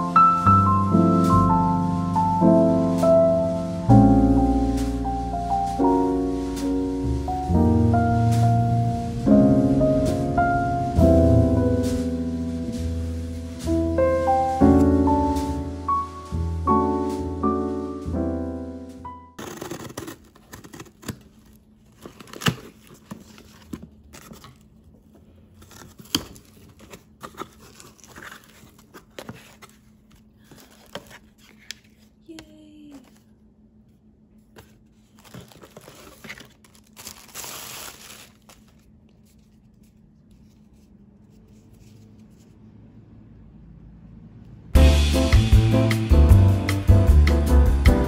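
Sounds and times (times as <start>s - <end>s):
scissors cutting tape: 19.4s - 21.3s
cardboard flaps scraping: 19.4s - 32.1s, 34.5s - 42.6s
plastic wrap crinkling: 19.4s - 32.3s, 34.5s - 40.7s.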